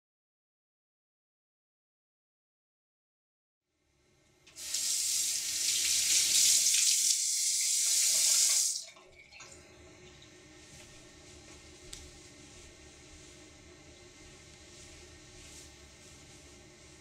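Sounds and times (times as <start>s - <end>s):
sink tap running: 4.5s - 9.6s.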